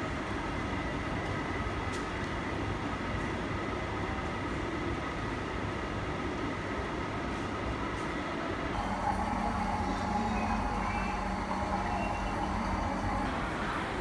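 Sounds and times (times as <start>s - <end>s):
faint steady hum: 8.7s - 14.0s
low indoor rumble: 8.7s - 14.0s.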